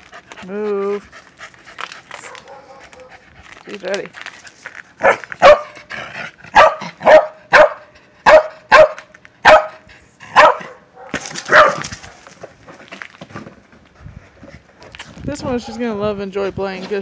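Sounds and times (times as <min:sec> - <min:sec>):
dog barking: 0:02.2 - 0:03.2, 0:05.0 - 0:05.8, 0:06.5 - 0:11.8.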